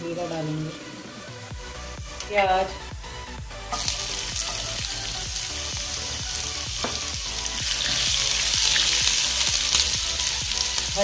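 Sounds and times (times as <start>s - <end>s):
onion sizzling in hot oil: 3.7s - 11.0s.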